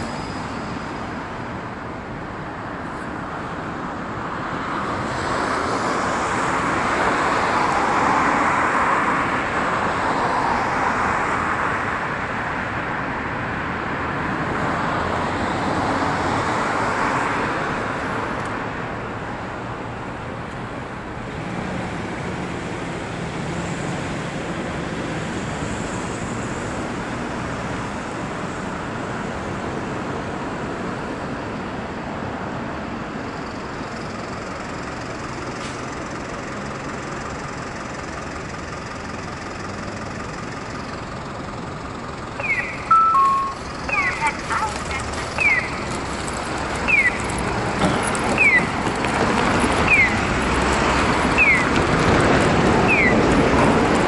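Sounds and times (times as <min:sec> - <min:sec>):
cars passing: 0:00.0 - 0:54.0.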